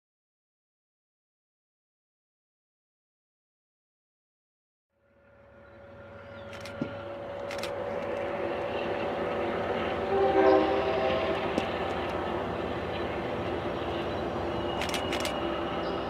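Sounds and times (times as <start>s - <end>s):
train horn: 5.0s - 16.0s
train rumbling: 5.0s - 16.0s.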